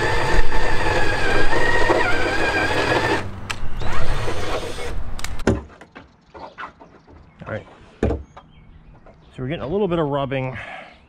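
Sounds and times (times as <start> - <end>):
high-speed power tool whining: 0.0 - 5.0.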